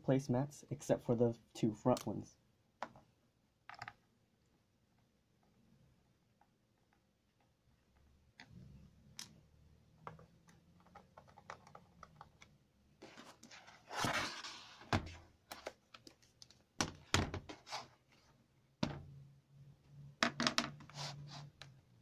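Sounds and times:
laptop sliding scrape: 0:13.0 - 0:14.9, 0:17.5 - 0:18.2, 0:20.8 - 0:21.6.

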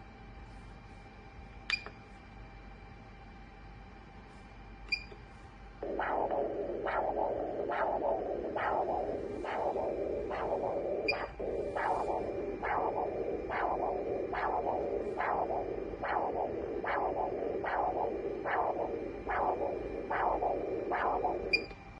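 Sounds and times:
doppler ultrasound whooshing pulse: 0:05.6 - 0:22.0.

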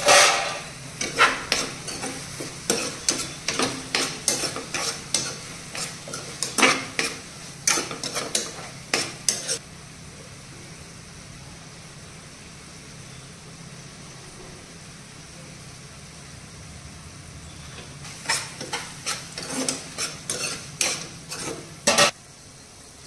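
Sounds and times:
metal spoon scraping a pan: 0:00.0 - 0:09.6, 0:17.7 - 0:22.2.

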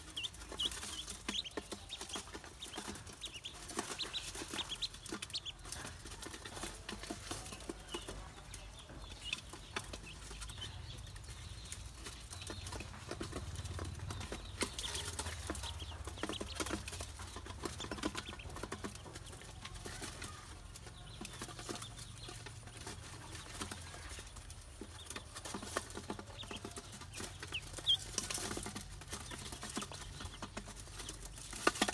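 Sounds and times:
bills pecking metal bowl: 0:00.0 - 0:10.6
ducklings peeping: 0:00.0 - 0:31.9.

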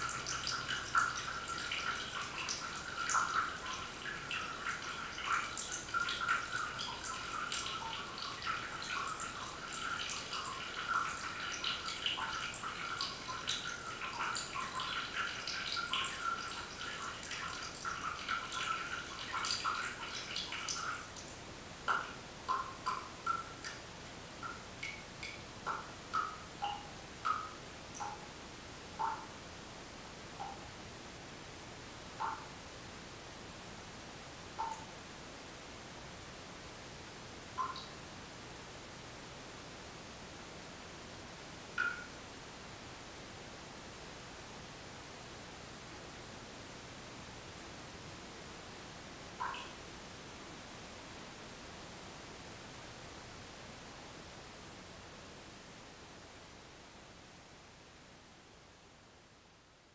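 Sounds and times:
water dripping into glass bowl: 0:00.0 - 0:21.2, 0:21.9 - 0:23.8, 0:24.4 - 0:28.2, 0:29.0 - 0:29.3, 0:30.4 - 0:30.6, 0:34.6 - 0:34.9, 0:37.6 - 0:37.9, 0:41.8 - 0:42.1, 0:49.4 - 0:49.8.

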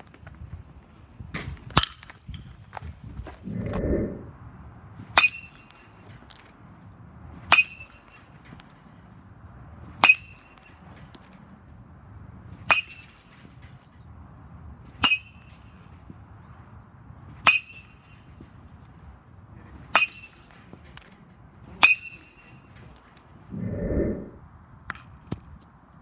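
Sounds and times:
metal bat striking balls: 0:05.1 - 0:06.7, 0:07.3 - 0:14.2, 0:15.0 - 0:16.3, 0:17.4 - 0:23.4.

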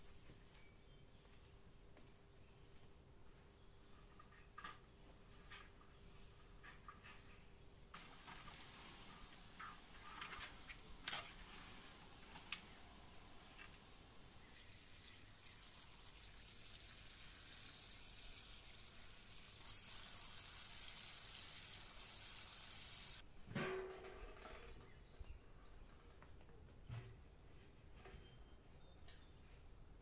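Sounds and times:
water from hose splashing into pot: 0:08.0 - 0:12.7, 0:14.3 - 0:23.2.

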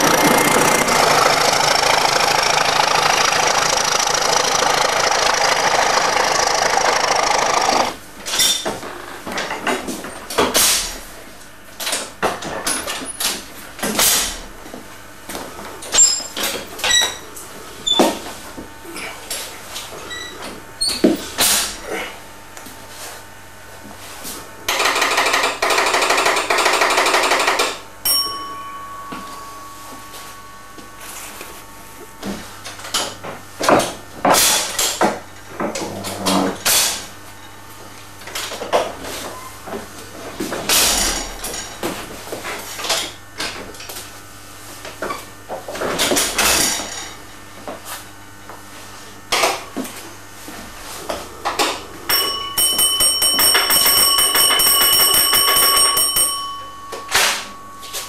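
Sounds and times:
electric bell rattling: 0:00.0 - 0:08.6, 0:24.7 - 0:33.2, 0:50.8 - 0:58.0
single bell stroke: 0:28.0 - 0:31.7, 0:52.1 - 0:58.0.

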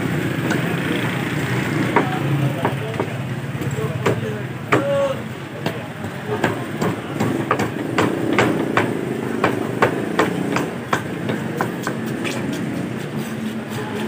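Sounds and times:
cleaver chopping fish on wood: 0:04.0 - 0:12.4.

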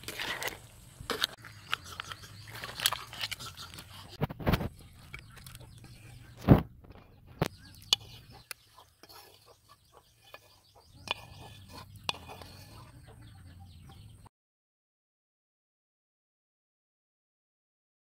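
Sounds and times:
chickens clucking: 0:01.3 - 0:14.3.

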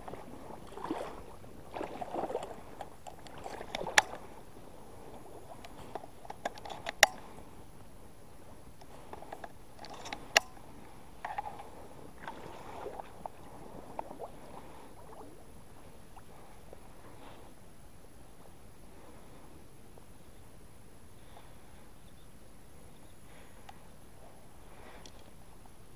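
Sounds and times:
paddle strokes swishing in water: 0:00.0 - 0:20.1.

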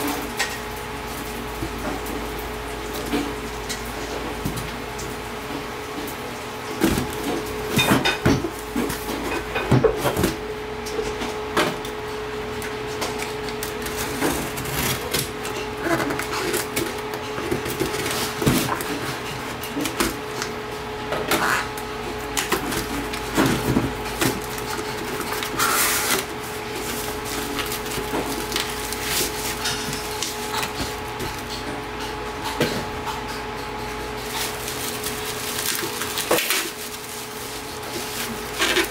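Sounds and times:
knife scraping packing tape: 0:24.5 - 0:30.8, 0:34.2 - 0:38.9.

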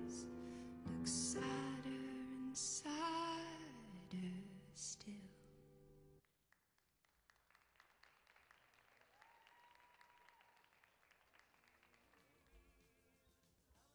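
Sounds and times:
audience applause: 0:07.0 - 0:12.9.

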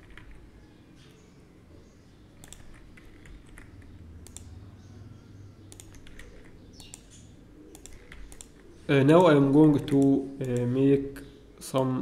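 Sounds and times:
keyboard keystrokes: 0:02.4 - 0:04.5, 0:05.7 - 0:08.6
mouse clicks: 0:04.2 - 0:04.5, 0:05.7 - 0:08.6.

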